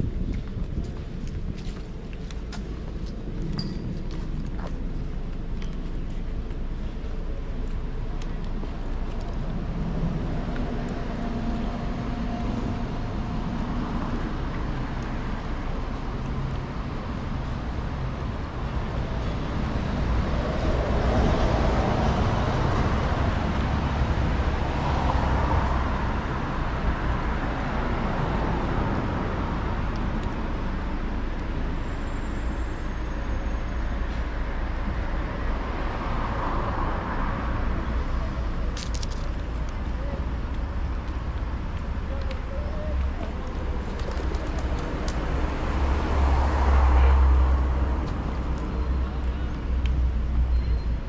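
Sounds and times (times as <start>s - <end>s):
road traffic rumble: 0.0s - 51.0s.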